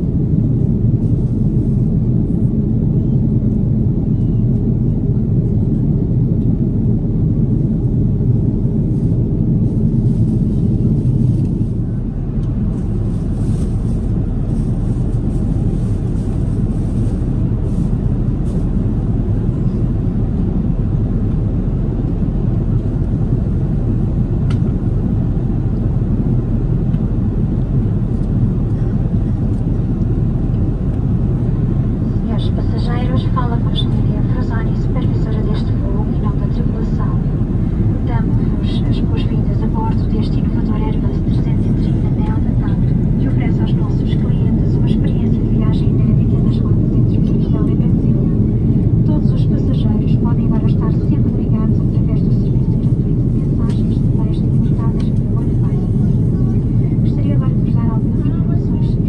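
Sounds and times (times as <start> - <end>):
airliner cabin rumble: 0.0 - 59.0.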